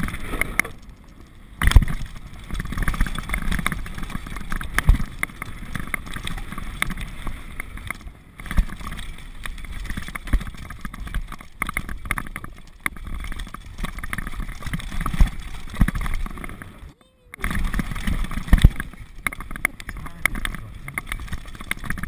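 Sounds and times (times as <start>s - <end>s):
bike rattling over bumps: 0.0s - 22.0s
bike tyres rumbling on dirt: 0.0s - 22.0s.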